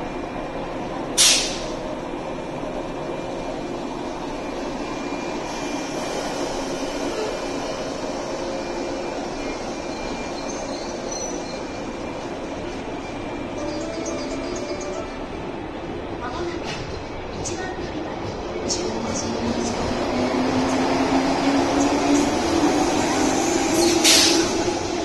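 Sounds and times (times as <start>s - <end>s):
electric train rumble and hum: 0.0s - 25.0s
short sharp hiss: 1.2s - 1.7s.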